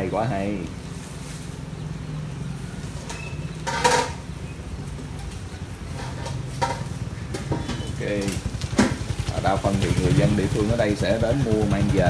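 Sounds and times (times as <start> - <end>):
motorbike engine running: 3.2 - 12.0.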